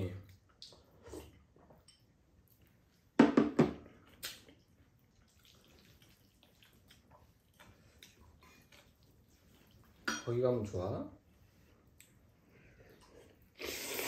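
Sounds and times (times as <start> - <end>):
wet slurp from a bowl: 0.6 - 1.6, 4.0 - 10.0, 12.9 - 14.0.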